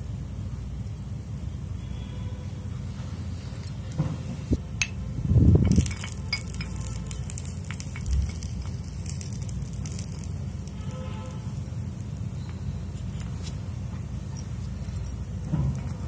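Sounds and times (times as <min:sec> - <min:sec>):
steady low rumble: 0:04.5 - 0:16.0.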